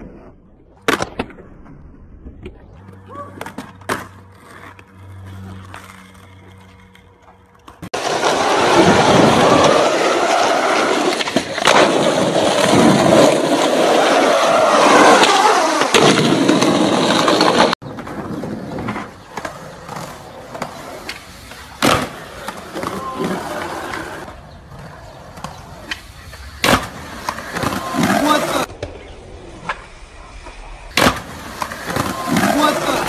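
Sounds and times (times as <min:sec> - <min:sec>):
skateboard wheels rolling on asphalt: 0:00.0 - 0:33.0
skateboard clacks: 0:15.1 - 0:33.0.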